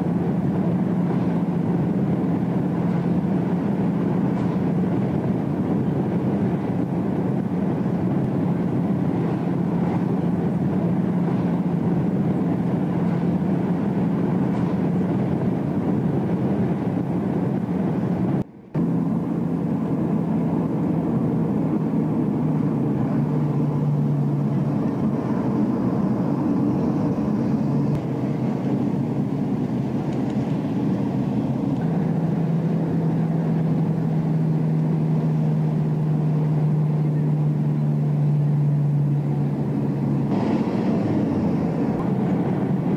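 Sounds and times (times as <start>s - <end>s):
car engine and road noise: 0.0s - 42.9s.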